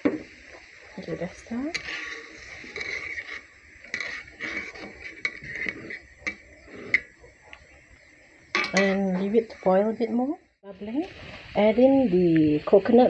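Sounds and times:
metal spatula scraping a wok: 1.0 - 7.2, 8.6 - 10.0.

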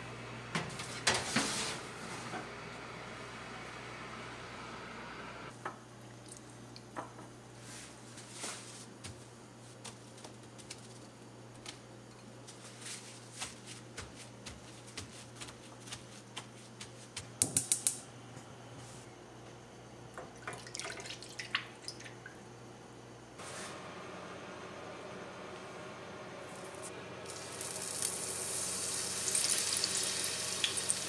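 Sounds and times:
potato sticks pattering on paper: 12.5 - 17.8.

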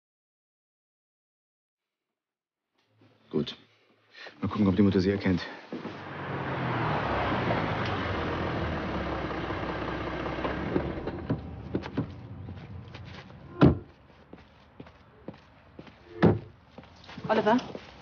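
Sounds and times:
car driving up and stopping: 5.8 - 13.6
car door thunk: 10.7 - 12.3, 13.5 - 13.9.

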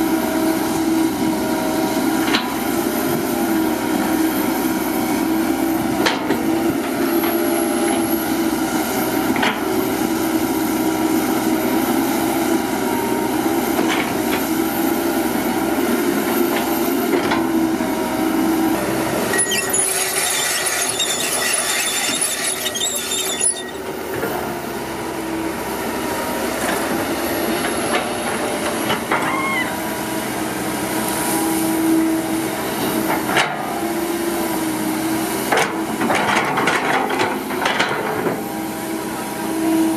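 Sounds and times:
excavator engine droning: 0.0 - 39.9
soil dumping rush: 18.4 - 23.8.

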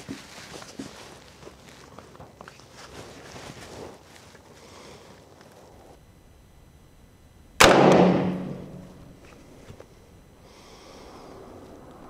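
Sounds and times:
rifle shot: 7.6 - 9.0.

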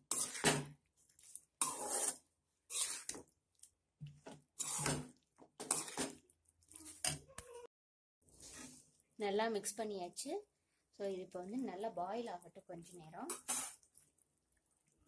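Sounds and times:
metal ladle scraping a pot: 0.0 - 0.7, 1.6 - 3.2, 4.6 - 6.2, 8.4 - 8.9.

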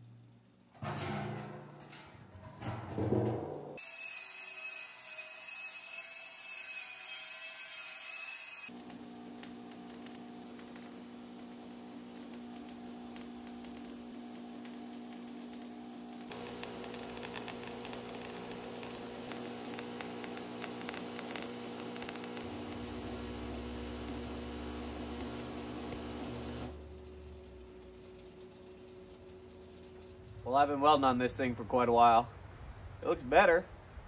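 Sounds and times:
welding arc crackling: 8.7 - 30.6
electrical hum: 8.7 - 31.8.

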